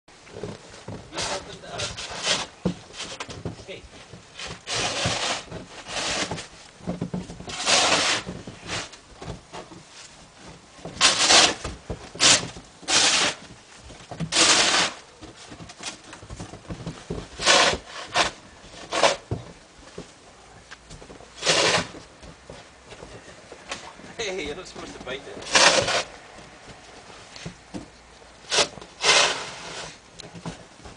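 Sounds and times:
snow shovel scraping on wooden deck: 0.3s - 9.0s, 10.8s - 13.6s, 14.2s - 19.5s, 21.4s - 22.1s, 24.7s - 26.2s, 28.4s - 30.6s.

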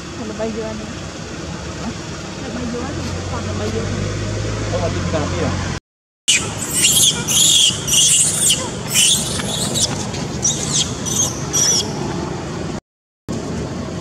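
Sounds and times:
young monkey squealing: 6.3s - 12.0s.

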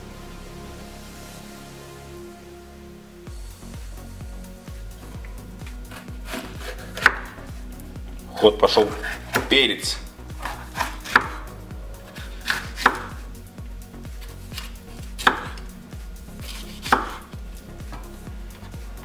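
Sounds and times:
knife cutting bell pepper: 5.7s - 7.5s, 8.8s - 9.6s, 10.4s - 13.2s, 14.2s - 15.7s, 16.4s - 17.3s.

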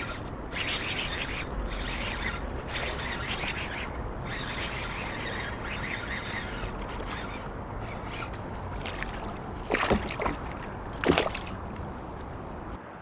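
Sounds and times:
water splashing and sloshing: 0.0s - 12.8s.

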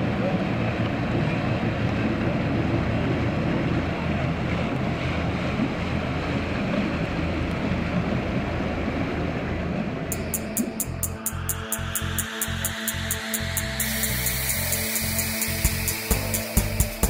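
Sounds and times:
water: 0.0s - 11.3s
motor boat engine passing: 0.0s - 17.0s.

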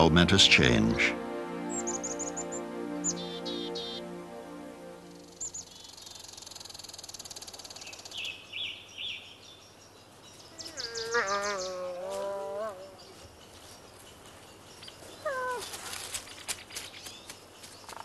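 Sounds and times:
bird chirps: 5.3s - 11.9s
wolf whining: 10.7s - 13.0s.

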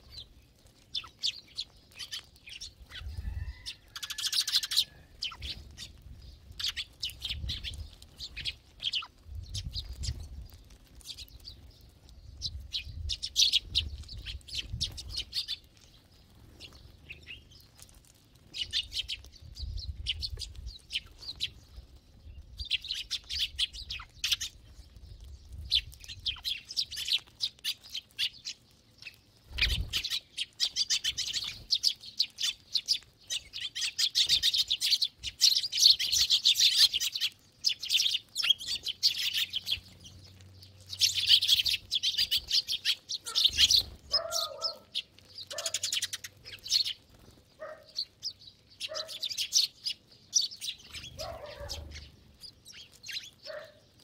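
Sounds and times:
sparrows chirping: 0.0s - 54.0s
low-pitched animal calls: 43.2s - 45.9s.

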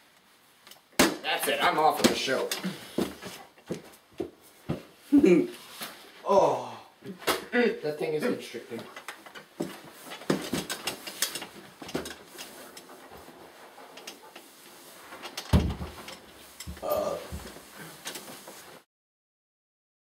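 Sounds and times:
cloth rustling: 8.7s - 18.8s.

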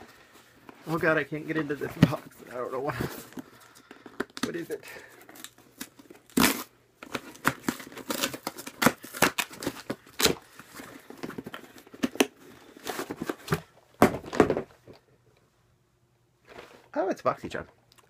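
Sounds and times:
packaging tearing and crinkling: 4.2s - 10.5s.

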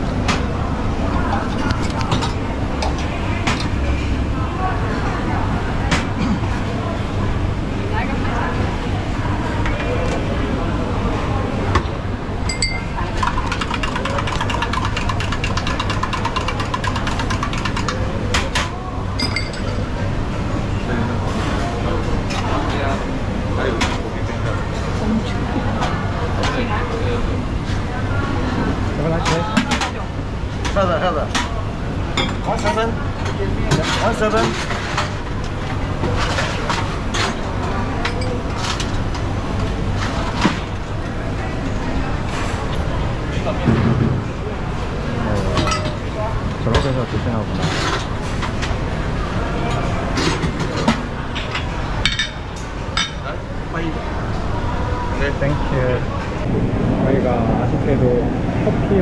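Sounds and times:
busy crowd din: 0.0s - 59.0s
murmur of voices: 0.0s - 59.0s
steady low hum: 0.0s - 59.0s
metal spoon clinking in a cup: 12.5s - 14.8s
dishes and cutlery clinking: 19.2s - 19.8s.

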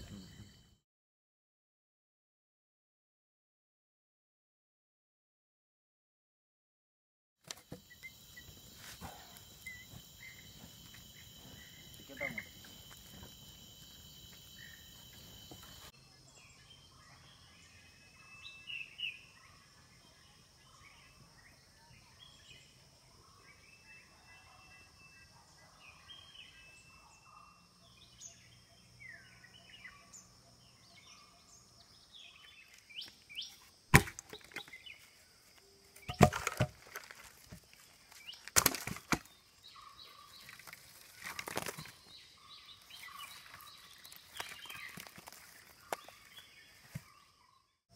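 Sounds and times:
faint bird chirps: 0.0s - 0.8s, 7.6s - 33.7s
high insect drone: 7.6s - 15.9s.

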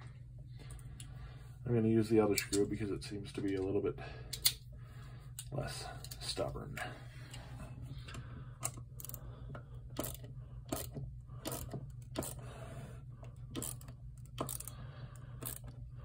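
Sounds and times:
ratcheting multitool clicking: 8.6s - 9.2s, 10.0s - 12.4s, 13.4s - 14.8s, 15.4s - 15.8s.

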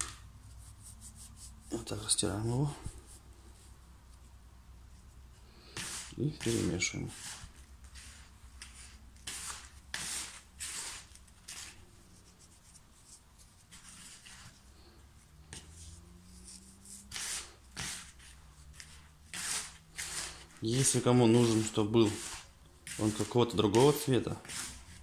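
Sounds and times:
hands rubbing dry bait in bowl: 16.4s - 25.0s.

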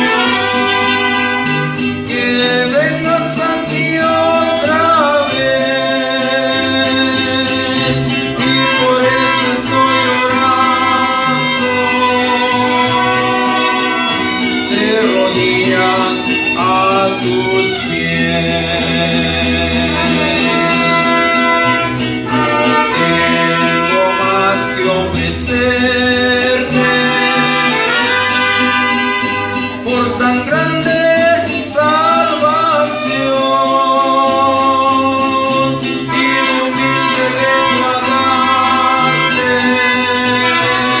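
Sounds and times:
trumpets: 0.0s - 31.3s, 35.8s - 41.0s
plucked bass notes: 0.0s - 41.0s
strummed guitar: 0.0s - 41.0s
violin melody: 7.8s - 23.9s.

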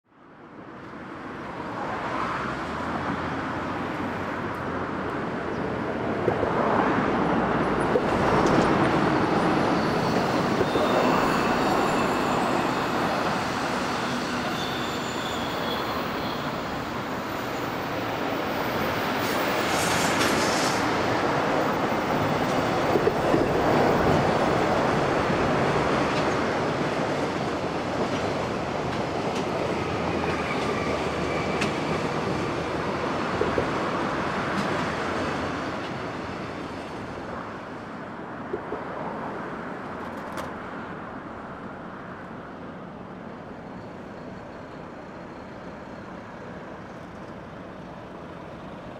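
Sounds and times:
train wheels rolling on rail: 6.1s - 39.3s
high wheel squeals: 9.2s - 19.4s.

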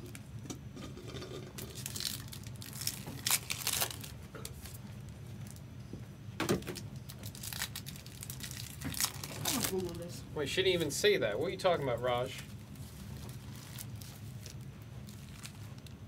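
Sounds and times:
low room hum: 0.0s - 16.0s
foil wrappers crinkling and tearing: 1.6s - 5.6s, 6.6s - 10.1s, 11.9s - 16.0s.

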